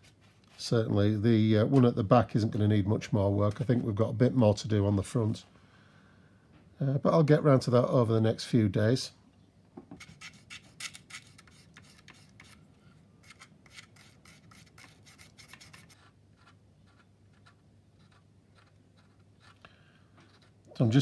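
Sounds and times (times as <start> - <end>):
knife scraping plastic: 10.0 - 20.6.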